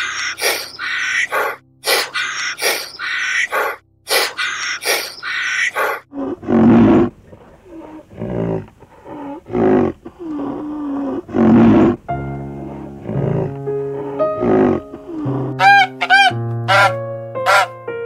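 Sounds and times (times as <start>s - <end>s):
short harsh high calls: 0.0s - 6.0s, 15.6s - 17.7s
large animal deep calls: 0.0s - 17.7s.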